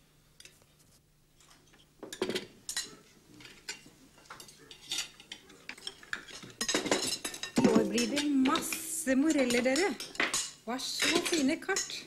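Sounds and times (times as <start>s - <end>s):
cutlery clinking on plates: 1.4s - 12.0s.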